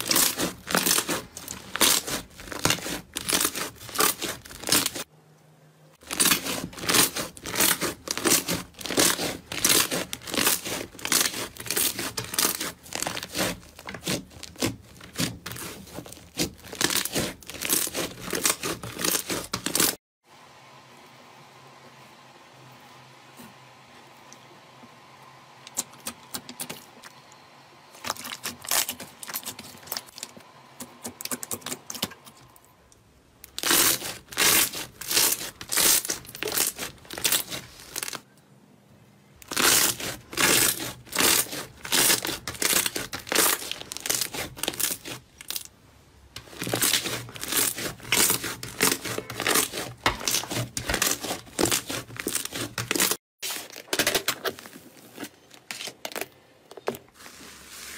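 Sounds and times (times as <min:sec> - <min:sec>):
slime crackling and popping: 0:00.0 - 0:05.1, 0:06.0 - 0:20.0, 0:33.5 - 0:38.2, 0:39.4 - 0:45.7, 0:46.4 - 0:54.2.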